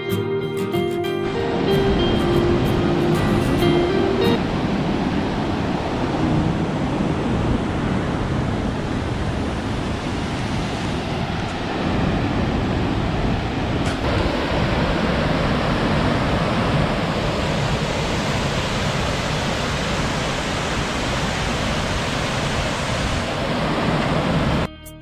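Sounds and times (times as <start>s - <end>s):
background music: 0.0s - 4.4s, 24.7s - 25.0s
water rushing over weir: 2.2s - 24.7s.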